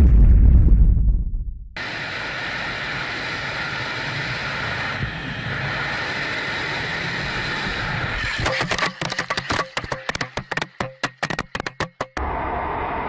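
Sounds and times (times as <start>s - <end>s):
wind rush: 0.0s - 8.4s.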